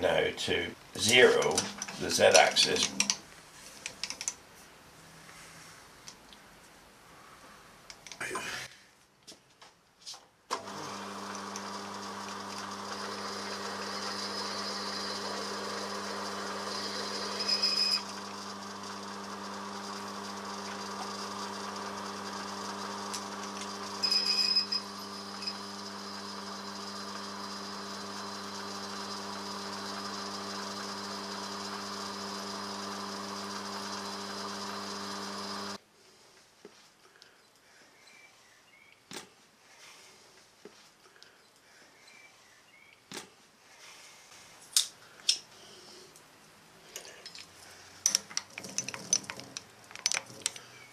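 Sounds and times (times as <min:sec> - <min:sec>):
milling machine motor running: 0:10.6 - 0:35.8, 0:48.0 - 0:50.6
drill bit squealing: 0:13.0 - 0:18.8, 0:23.1 - 0:28.0.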